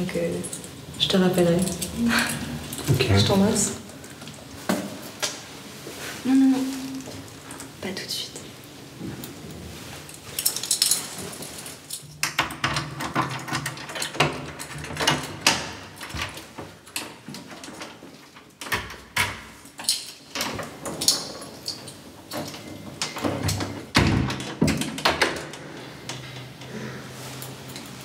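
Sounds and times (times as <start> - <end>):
keys jangling in door lock: 10.2 - 25.6.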